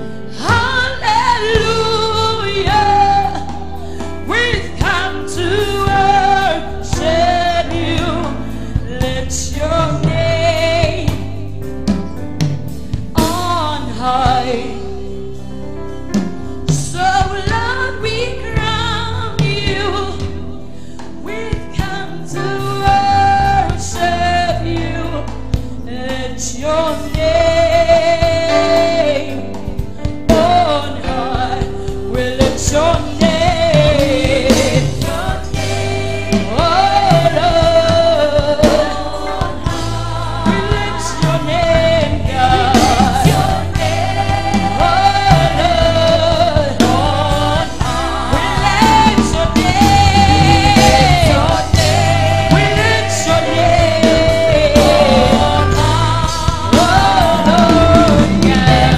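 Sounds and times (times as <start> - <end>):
woman singing into microphone: 0.0 - 11.6, 13.2 - 15.3, 16.7 - 58.9
instrumental accompaniment: 0.0 - 58.9
backing vocalists singing: 30.3 - 58.9.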